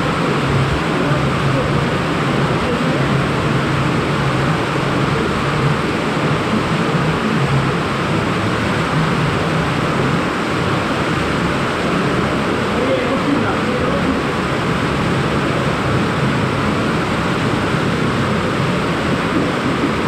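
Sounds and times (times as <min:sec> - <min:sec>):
water rushing through tunnel: 0:00.0 - 0:20.0.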